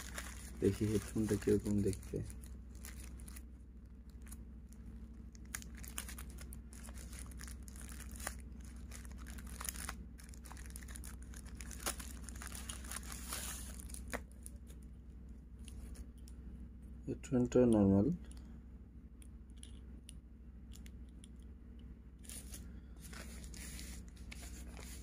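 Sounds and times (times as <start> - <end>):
plastic bag crinkling and tearing: 0.0 - 3.5, 5.3 - 14.5.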